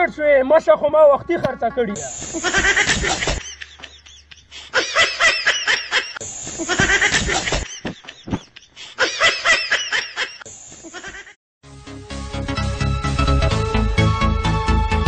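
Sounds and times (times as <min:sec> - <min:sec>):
rapid high-pitched laughter: 0:02.2 - 0:11.4.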